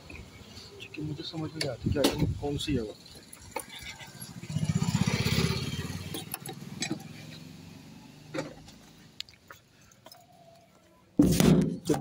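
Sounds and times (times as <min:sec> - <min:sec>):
motorcycle passing: 0:03.0 - 0:09.2.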